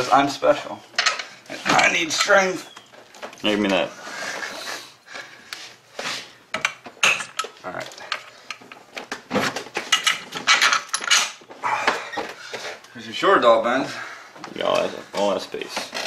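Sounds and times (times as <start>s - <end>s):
metal tools clinking: 1.8s - 2.8s, 9.9s - 11.4s.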